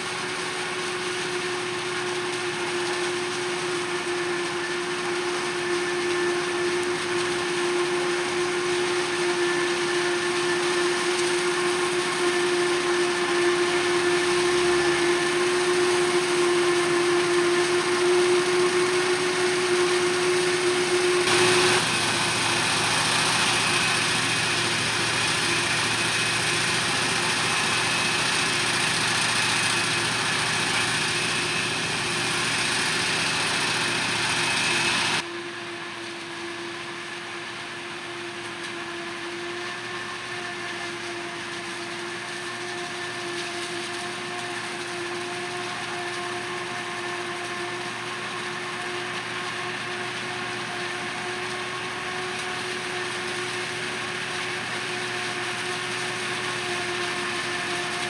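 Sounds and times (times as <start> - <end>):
faint machine whine: 0.0 - 58.0
forage harvester engine and chopping drum: 0.0 - 58.0
tractor running: 0.0 - 58.0.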